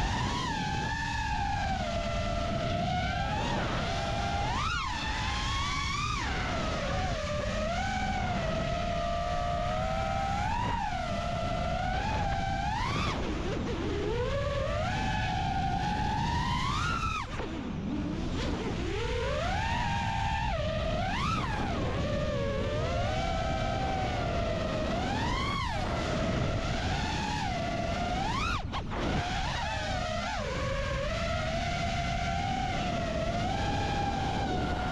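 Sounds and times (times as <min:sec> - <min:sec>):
wind noise: 0:00.0 - 0:34.9
drone motors whining: 0:00.1 - 0:34.9.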